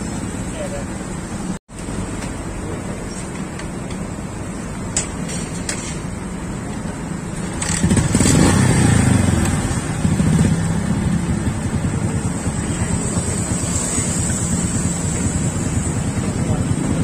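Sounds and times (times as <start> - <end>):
motorcycle engine running: 7.3 - 17.0.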